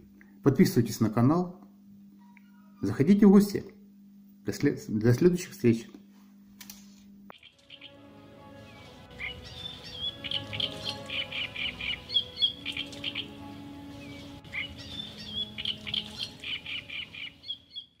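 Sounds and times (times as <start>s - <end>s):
soft music with held notes: 7.3s - 17.8s
songbird chirping: 7.3s - 18.0s.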